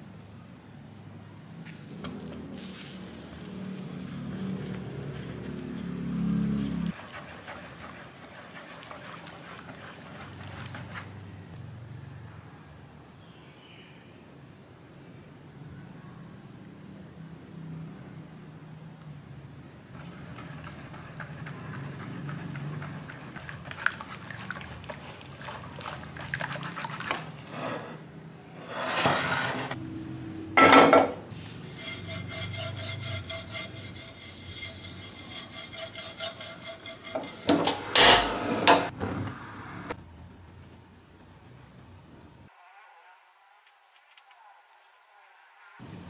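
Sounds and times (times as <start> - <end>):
whisk beating batter in bowl: 6.9 - 11.2, 20.0 - 27.5, 31.7 - 38.9
whisk clinking against bowl: 31.7 - 38.9.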